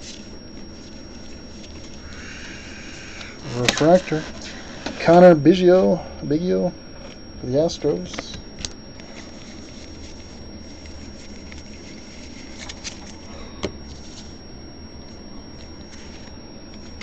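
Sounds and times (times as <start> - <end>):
cards rustling: 0.0 - 2.4, 3.4 - 4.8, 8.0 - 14.4.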